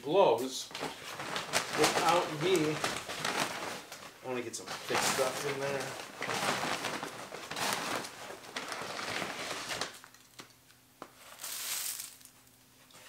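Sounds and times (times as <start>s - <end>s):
wood shavings rustling: 0.8s - 10.1s, 11.2s - 12.5s
shavings pouring onto concrete: 11.3s - 12.4s.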